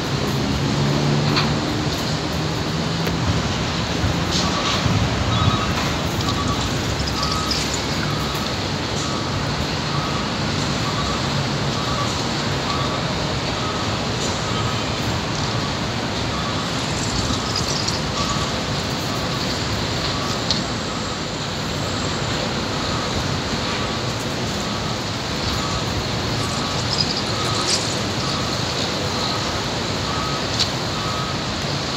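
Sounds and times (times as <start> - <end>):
heavy highway traffic: 0.0 - 31.9
faint beep: 4.4 - 10.2, 10.8 - 14.9, 24.7 - 31.5.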